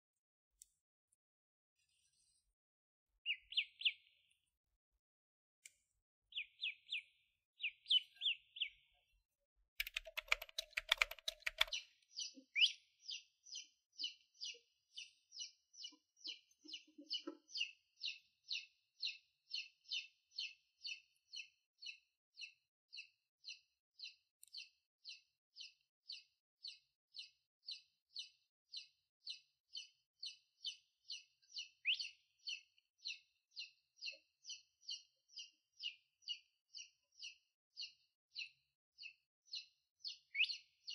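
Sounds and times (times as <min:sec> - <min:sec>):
rattle of clicks: 0:09.8 - 0:11.8.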